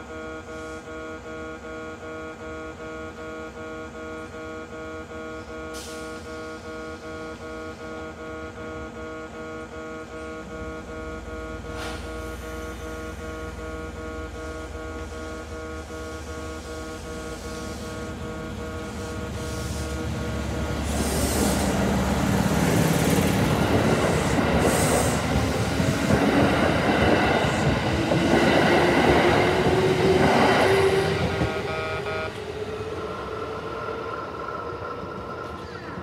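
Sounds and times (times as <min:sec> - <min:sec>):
level-crossing alarm ringing: 0:13.4 - 0:35.0
train wheels rumbling: 0:16.1 - 0:36.0.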